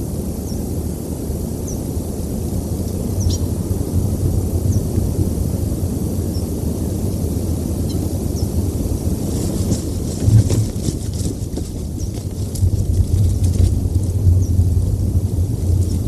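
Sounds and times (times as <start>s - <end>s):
low wind rumble: 0.0s - 16.0s
faint high bird chirps: 3.2s - 3.5s.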